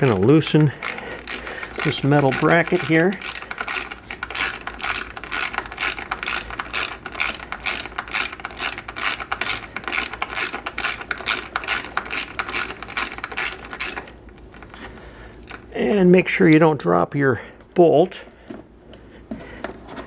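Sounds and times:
ratchet pawl clicking: 0:00.0 - 0:14.1.

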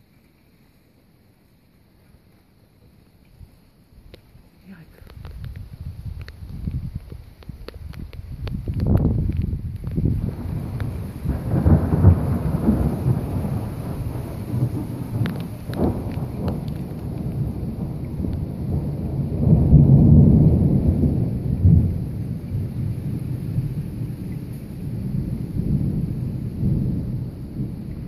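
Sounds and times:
thunder rumbling: 0:05.2 - 0:28.0
sharp thunder cracks: 0:08.7 - 0:28.0.

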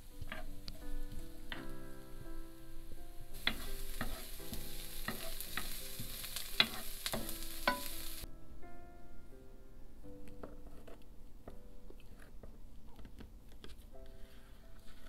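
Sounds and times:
wooden spoon scraping a pan: 0:00.0 - 0:01.8, 0:03.3 - 0:08.2, 0:10.5 - 0:11.0, 0:12.0 - 0:12.5, 0:13.7 - 0:15.0
onion sizzling in oil: 0:00.0 - 0:08.3.

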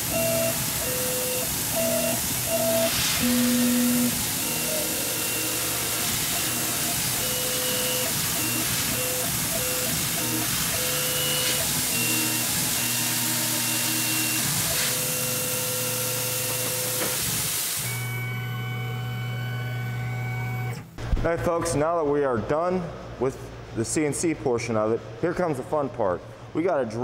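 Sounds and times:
milling machine cutting metal: 0:00.0 - 0:19.3
mist coolant spraying hiss: 0:00.4 - 0:15.8.

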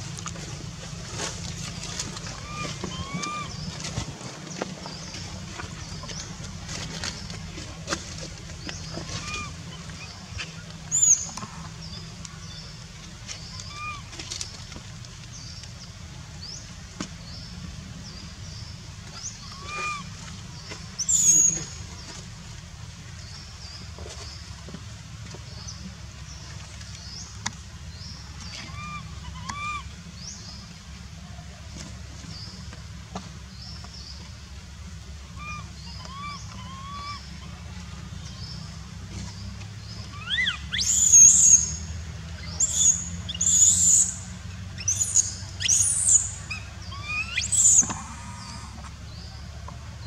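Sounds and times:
steady low rumble: 0:00.0 - 0:21.1
animal squealing call: 0:28.7 - 0:29.9, 0:35.4 - 0:37.3, 0:40.2 - 0:41.3, 0:45.6 - 0:48.8
high chirping animal calls: 0:40.2 - 0:41.7, 0:44.8 - 0:48.7.

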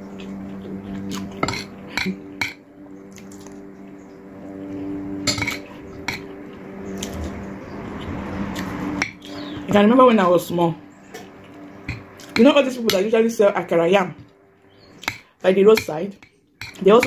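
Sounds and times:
steady low hum: 0:00.0 - 0:17.0
metal spoon scraping a plate: 0:01.4 - 0:02.1, 0:05.3 - 0:06.2.

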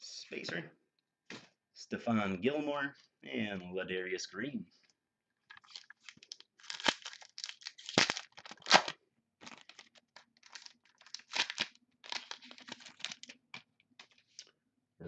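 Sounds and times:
wrapper torn and crinkled: 0:05.5 - 0:13.6.

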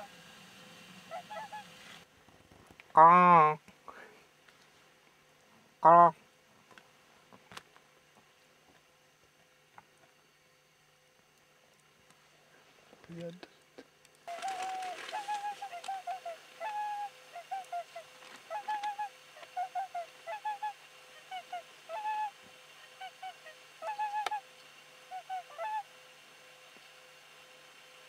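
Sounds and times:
swans calling: 0:01.1 - 0:02.0, 0:14.3 - 0:26.0.

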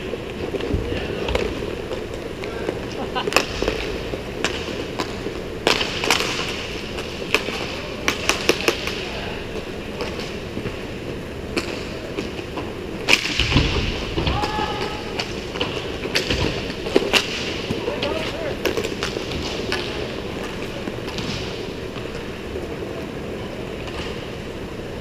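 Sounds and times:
hockey sticks clacking: 0:00.0 - 0:23.0
inline skate wheels rolling: 0:00.0 - 0:25.0.

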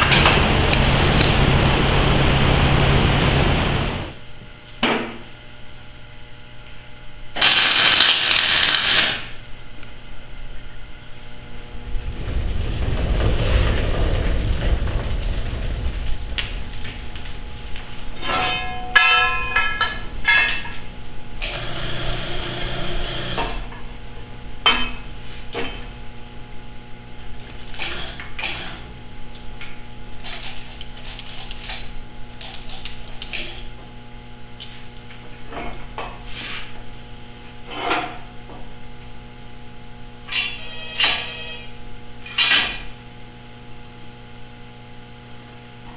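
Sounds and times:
steady low hum: 0:00.0 - 0:45.9
metal clanks and knocks: 0:18.2 - 0:20.9.

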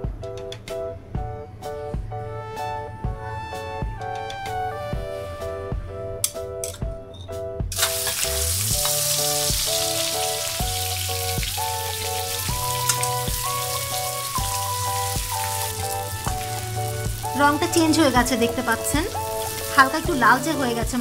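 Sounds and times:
background music with steady beat: 0:00.0 - 0:21.0
shrimp sizzling in hot oil: 0:07.7 - 0:21.0.

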